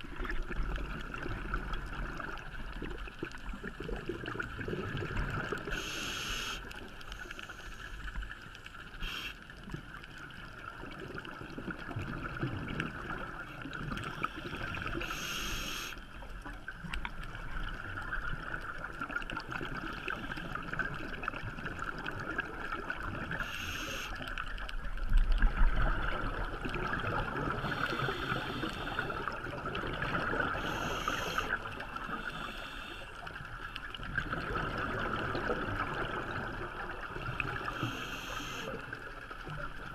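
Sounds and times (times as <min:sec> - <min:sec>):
steady underwater hiss: 0:00.0 - 0:10.9, 0:13.1 - 0:16.6, 0:17.3 - 0:24.6, 0:26.0 - 0:39.9
regulator inhale hiss: 0:05.7 - 0:08.2, 0:09.0 - 0:09.4, 0:14.2 - 0:16.0, 0:23.4 - 0:24.2, 0:27.6 - 0:29.2, 0:30.6 - 0:33.4, 0:37.7 - 0:38.8.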